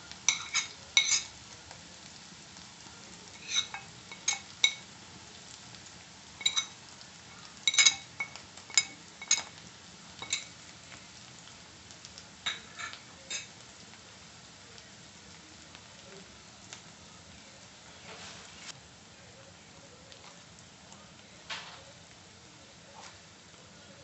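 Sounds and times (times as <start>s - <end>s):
onions sizzling in oil: 0.0s - 24.0s
metal spoon clinking on ceramic: 0.3s - 1.3s, 3.4s - 4.8s, 6.4s - 6.8s, 7.6s - 9.6s, 10.2s - 10.5s, 12.4s - 13.5s.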